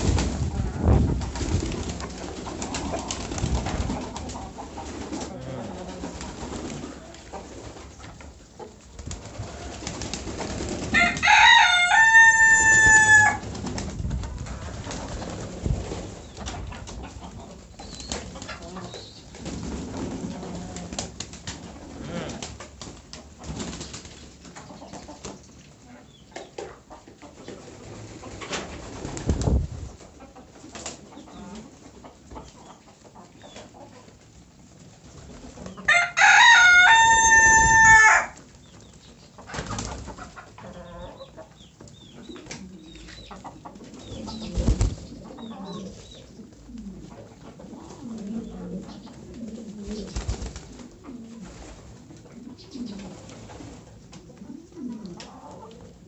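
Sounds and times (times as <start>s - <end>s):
wings flapping: 0.0s - 7.9s, 9.0s - 11.8s, 12.6s - 17.0s, 19.3s - 24.6s, 27.8s - 29.9s, 39.5s - 40.2s, 44.2s - 45.2s, 49.4s - 50.9s
pigeons cooing: 0.0s - 11.6s, 14.6s - 22.6s, 39.4s - 56.0s.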